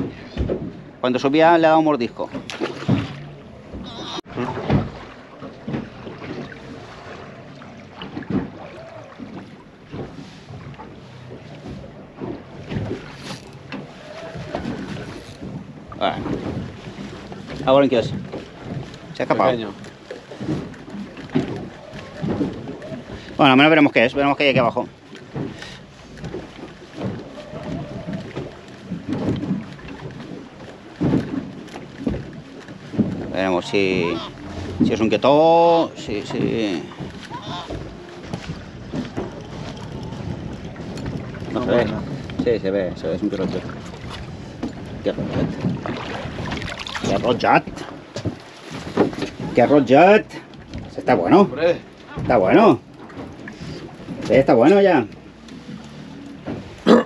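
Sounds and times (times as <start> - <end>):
waves lapping against boat hull: 0.0 - 57.0
wind: 0.0 - 57.0
wind rumbling on microphone: 26.2 - 49.9.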